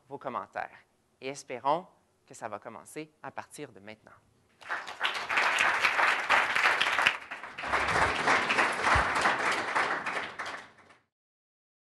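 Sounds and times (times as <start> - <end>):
audience applauding: 4.6 - 11.1.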